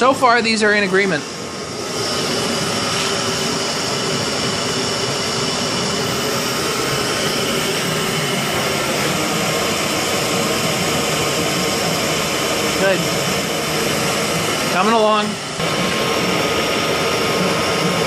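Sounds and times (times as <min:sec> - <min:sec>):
boiler burner roaring: 0:00.0 - 0:18.0.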